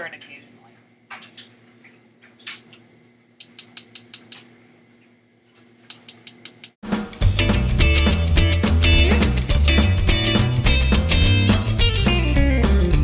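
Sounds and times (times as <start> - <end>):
stove igniter clicking: 3.4 - 4.5, 5.9 - 6.8
rock music with guitar: 6.9 - 13.0.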